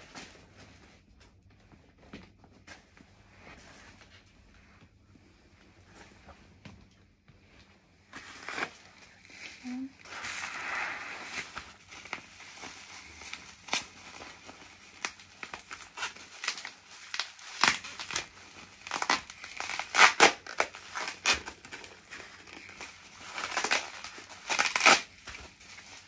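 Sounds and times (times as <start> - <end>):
bubble wrap crinkling: 7.5 - 26.0.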